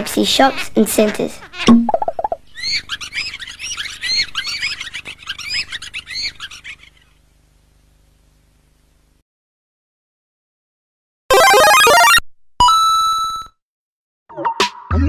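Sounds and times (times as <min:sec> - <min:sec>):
birds chirping: 0:01.5 - 0:07.2.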